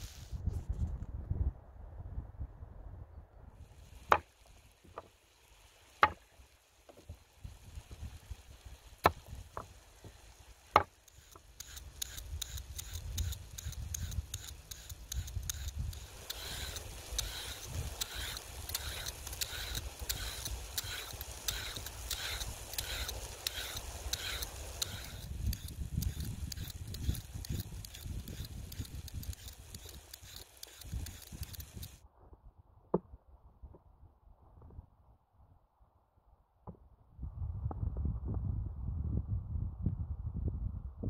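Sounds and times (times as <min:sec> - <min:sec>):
peeler scraping vegetables: 0:10.8 - 0:32.0
sharp clicks: 0:10.8 - 0:32.0.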